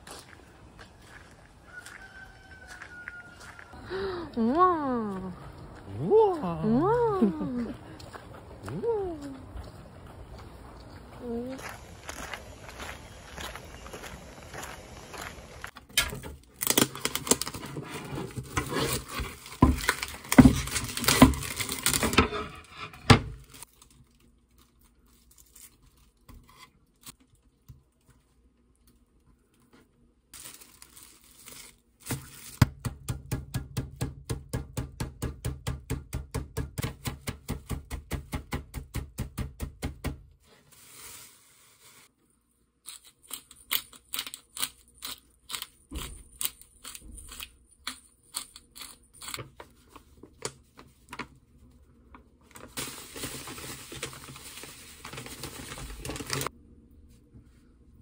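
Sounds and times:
plastic packaging crinkling: 0:16.4 - 0:22.2, 0:30.4 - 0:32.6, 0:49.4 - 0:56.5.

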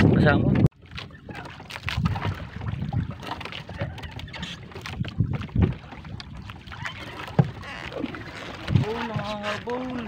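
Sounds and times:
sea and wind: 0:00.0 - 0:10.0
net knocking against hull: 0:07.3 - 0:10.0.

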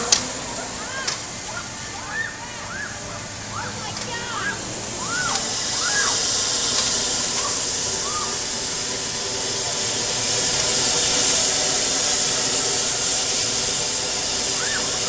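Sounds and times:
riders crying out: 0:00.0 - 0:08.9, 0:13.7 - 0:15.0
compressed air hissing: 0:00.0 - 0:15.0.

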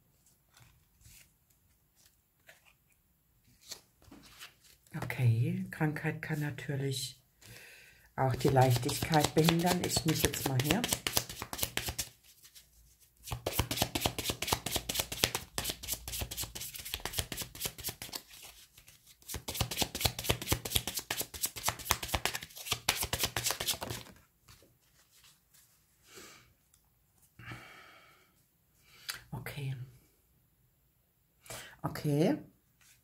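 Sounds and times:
cards being shuffled: 0:03.5 - 0:04.8, 0:08.3 - 0:25.4.

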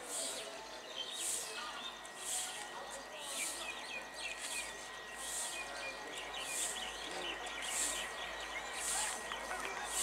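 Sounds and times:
small birds chirping: 0:00.0 - 0:10.0
high hissy bird call: 0:06.4 - 0:06.9, 0:07.6 - 0:08.1.

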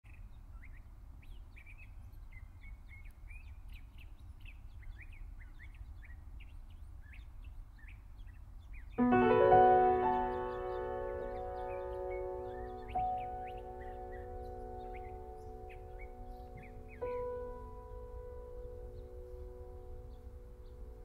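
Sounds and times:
small birds chirping: 0:00.0 - 0:21.0
music with ringing chord: 0:09.0 - 0:21.0.

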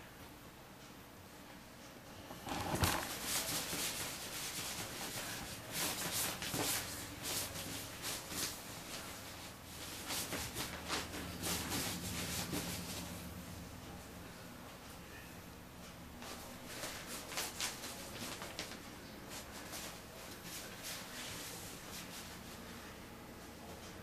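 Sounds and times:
cat scuffing plastic shower curtain: 0:02.8 - 0:13.2, 0:16.7 - 0:22.3.

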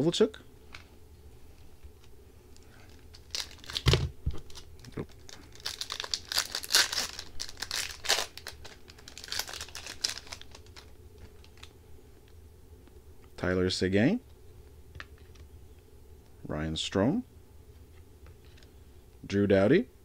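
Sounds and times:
cards rustling: 0:01.8 - 0:11.7
foil wrapper tearing and crinkling: 0:02.9 - 0:11.7.

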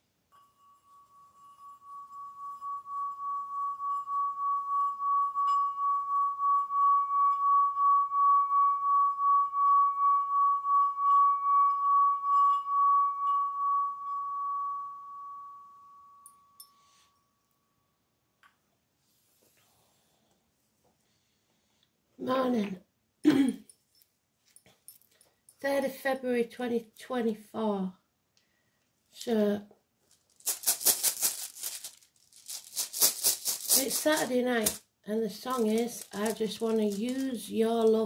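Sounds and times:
singing bowl ringing: 0:00.3 - 0:17.6.

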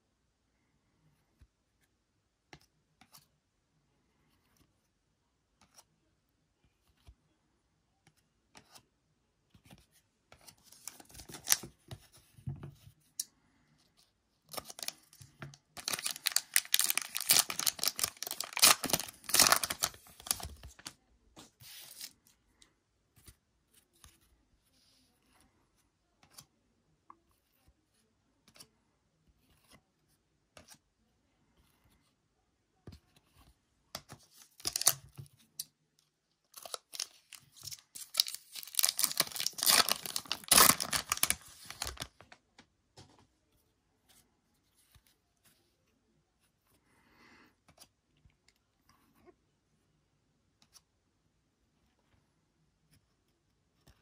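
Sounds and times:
card packs rustling: 0:14.6 - 0:21.0, 0:34.6 - 0:35.0, 0:36.5 - 0:42.4
foil tearing: 0:15.8 - 0:20.4, 0:38.0 - 0:42.0.

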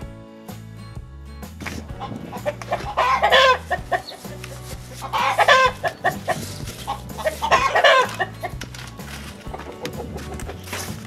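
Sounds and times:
background music with low beat: 0:00.0 - 0:11.0
chicken calling loudly: 0:02.0 - 0:08.6.

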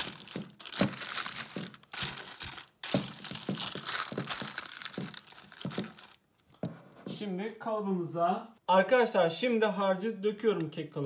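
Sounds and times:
baking paper crinkling: 0:00.0 - 0:06.3.

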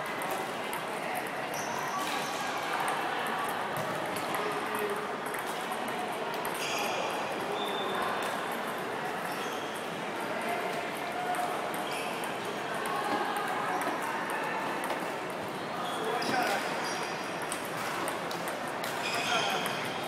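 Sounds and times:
background hubbub: 0:00.0 - 0:20.0
table tennis balls clicking: 0:03.7 - 0:06.6, 0:11.2 - 0:15.4, 0:16.4 - 0:20.0.

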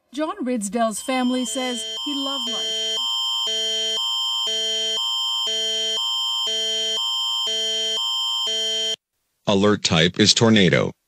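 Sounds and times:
held high tone: 0:00.9 - 0:09.0
electronic alert tones: 0:01.0 - 0:09.0.

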